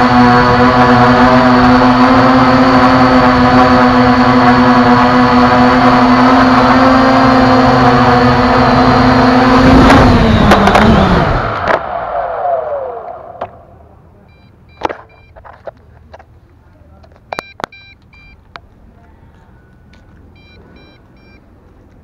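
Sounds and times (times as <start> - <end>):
drone propellers whining: 0.0 - 15.7, 19.2 - 22.0
drone landing knocks: 9.6 - 13.7.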